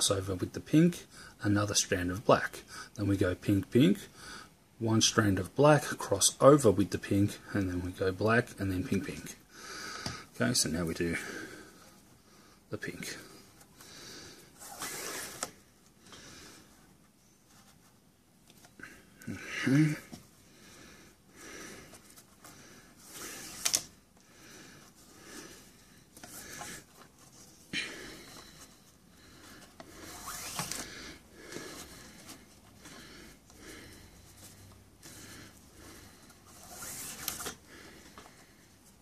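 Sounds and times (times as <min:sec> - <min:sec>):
paracord rubbing and swishing: 0:14.4 - 0:15.8, 0:21.9 - 0:24.0, 0:24.8 - 0:39.0.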